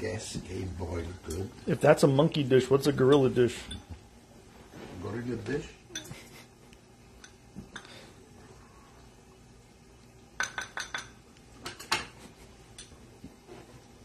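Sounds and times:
spoon clinking on glass dish: 0:10.4 - 0:12.1.

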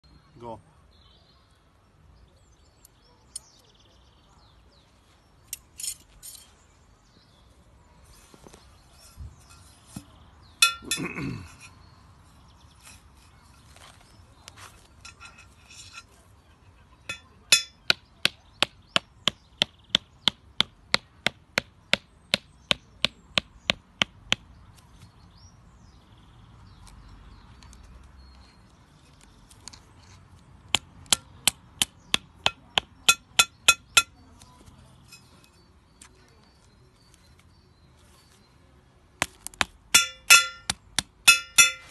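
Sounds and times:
metal pegs clinking together: 0:05.5 - 0:06.5, 0:10.6 - 0:11.1, 0:17.1 - 0:17.8, 0:40.0 - 0:40.7, 0:41.3 - 0:41.9
mallet knocking peg into ground: 0:30.7 - 0:34.1, 0:39.2 - 0:41.9.

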